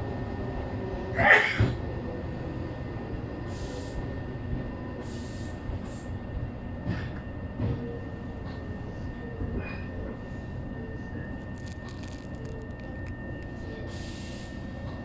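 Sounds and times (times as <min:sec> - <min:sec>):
train running rumble: 0:03.5 - 0:15.0.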